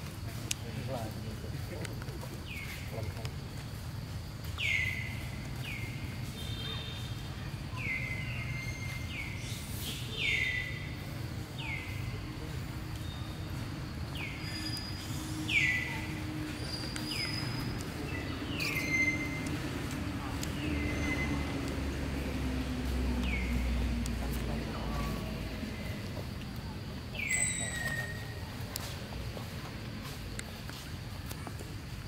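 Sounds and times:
bird calling: 14.2 - 21.6.

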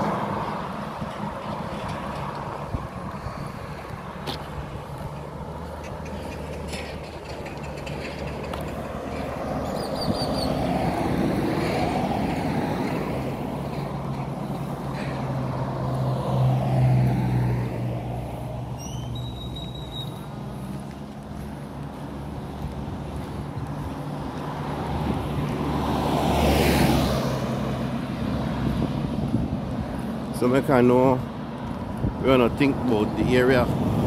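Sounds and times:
low engine hum: 0.0 - 26.7
road noise rushing: 0.0 - 34.0.

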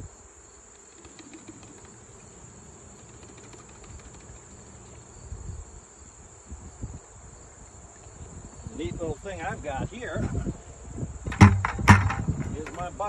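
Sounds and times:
insects droning: 0.0 - 13.0
low thumps: 11.2 - 12.9.

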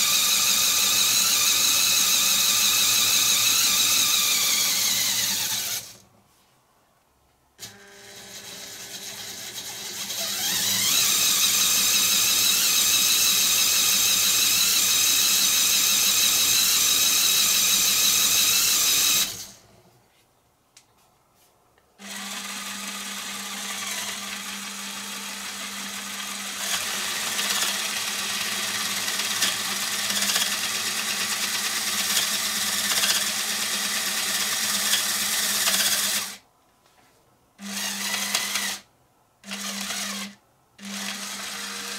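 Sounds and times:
small electric motor whining: 0.0 - 6.0, 8.9 - 19.6
gear whir: 10.1 - 11.6.

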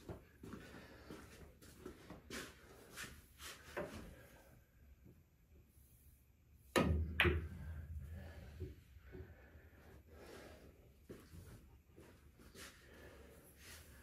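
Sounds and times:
cue striking cue ball: 6.8 - 7.6
pool balls clacking: 6.8 - 8.0.

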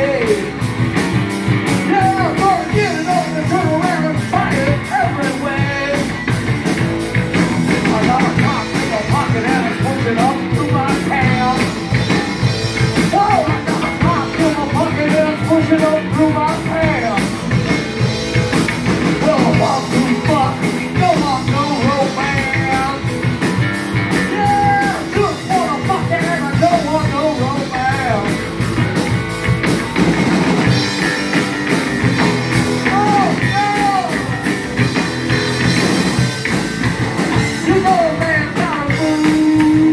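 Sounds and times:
man singing: 0.0 - 0.8, 1.7 - 6.3, 7.7 - 17.6, 19.1 - 23.2, 24.2 - 28.4, 32.5 - 34.4, 37.3 - 39.9
bass guitar: 0.0 - 39.9
drum kit: 0.0 - 39.9
electric guitar: 0.0 - 39.9.

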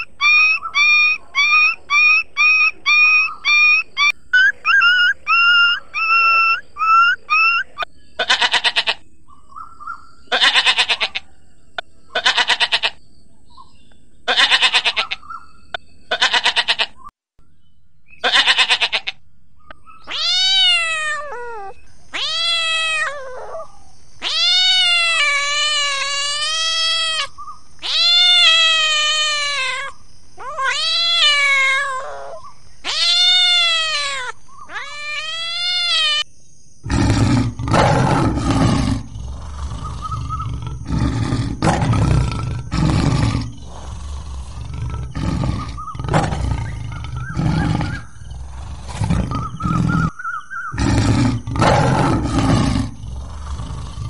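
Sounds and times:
cat meowing: 20.1 - 36.2
lion roaring: 36.8 - 50.1, 50.7 - 54.0.

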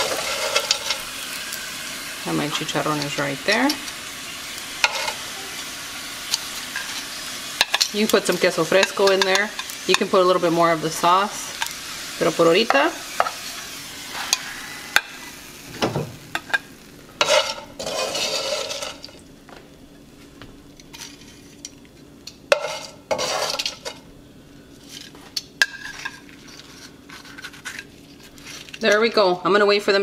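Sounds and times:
tongs scraping a pan: 0.0 - 15.3, 17.2 - 19.2, 20.8 - 21.8, 22.5 - 24.0, 24.8 - 29.1
tortillas sizzling in oil: 0.0 - 19.4, 20.7 - 28.9.

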